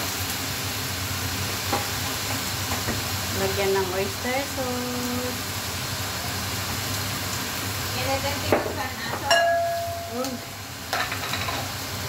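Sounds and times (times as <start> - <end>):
vegetables sizzling in a wok: 0.0 - 12.0
spatula clanking against wok: 9.2 - 11.7.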